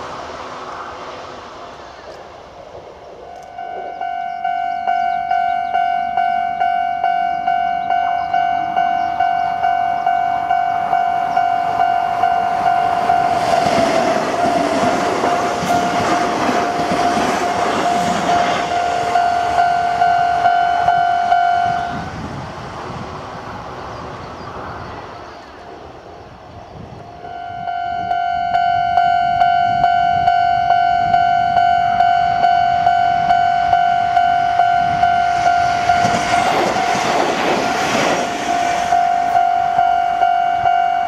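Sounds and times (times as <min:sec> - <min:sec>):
train rumbling past: 0:00.0 - 0:41.0
level crossing bell ringing: 0:03.5 - 0:13.4, 0:18.3 - 0:21.9, 0:38.9 - 0:41.0.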